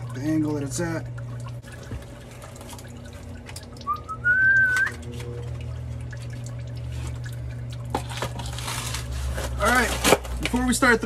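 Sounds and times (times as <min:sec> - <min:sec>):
steady low hum: 0:00.0 - 0:11.0
rising whistle: 0:03.8 - 0:05.0.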